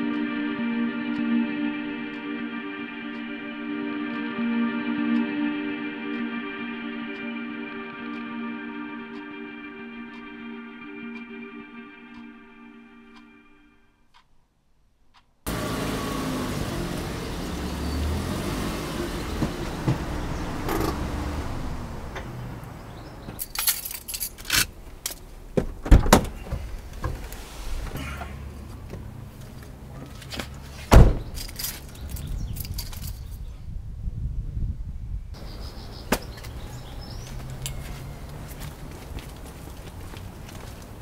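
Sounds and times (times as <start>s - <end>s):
car engine humming: 15.5s - 32.2s, 35.4s - 41.0s
car door thumps: 30.9s - 31.3s.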